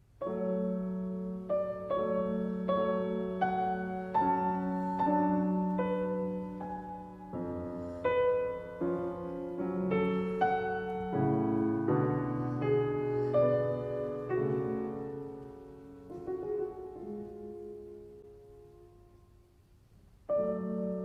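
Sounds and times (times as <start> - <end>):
slow piano melody: 0.0 - 21.0.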